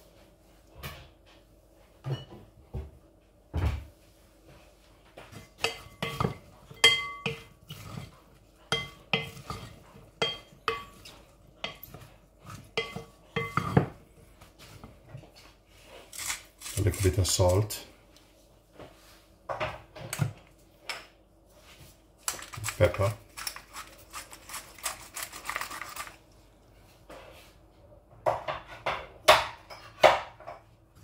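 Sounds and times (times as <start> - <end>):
wooden spoon knocking glass bowl: 5.6 - 7.5.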